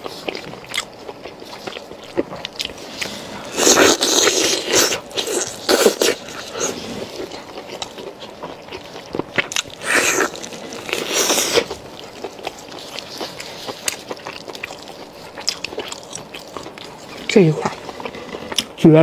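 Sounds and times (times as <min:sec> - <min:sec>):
person chewing meat: 0:00.0 - 0:18.8
meat tearing: 0:03.6 - 0:18.8.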